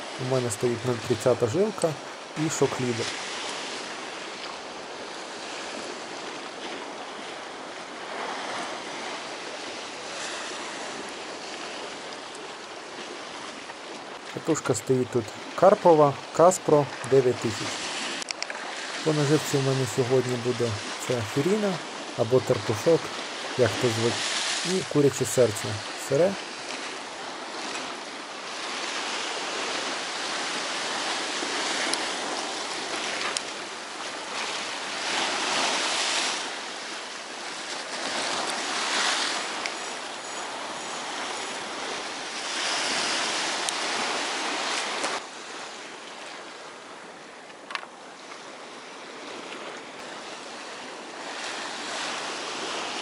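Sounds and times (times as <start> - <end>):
sea surf breaking on concrete: 16.6 - 39.8.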